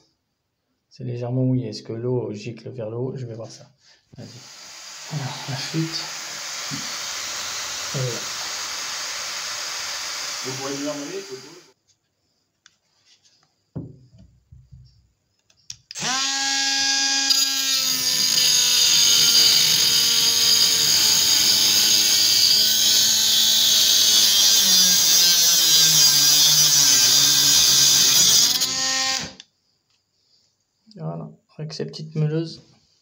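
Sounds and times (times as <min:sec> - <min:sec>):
grinder disc cutting pipe: 0:04.2 - 0:11.7, 0:15.9 - 0:29.4
angle grinder whining: 0:04.2 - 0:11.8, 0:15.9 - 0:29.4.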